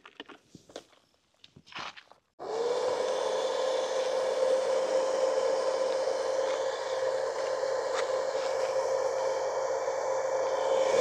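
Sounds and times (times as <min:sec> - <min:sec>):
electric fan motor whirring: 0:02.4 - 0:11.0.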